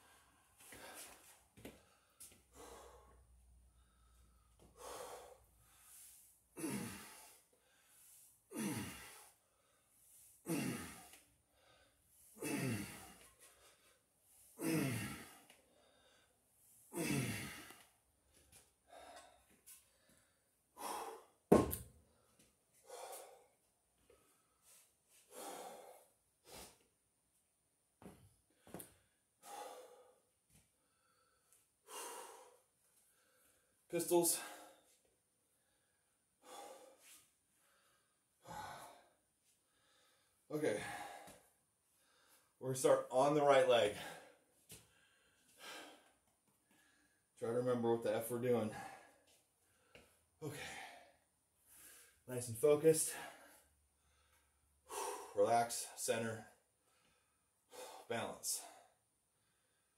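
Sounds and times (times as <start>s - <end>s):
man breathing: 0.0s - 27.0s, 28.0s - 42.6s, 43.8s - 47.4s, 48.6s - 52.3s, 52.9s - 59.9s
man exhaling heavily: 6.6s - 7.4s, 8.5s - 9.3s, 10.5s - 11.8s, 12.4s - 13.2s, 14.6s - 16.1s, 54.9s - 55.4s.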